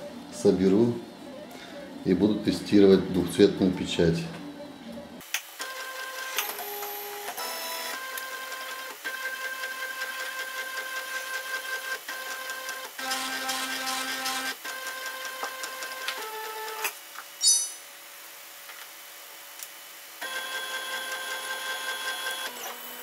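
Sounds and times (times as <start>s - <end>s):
printer stepper motors whining: 20.2s - 23.0s.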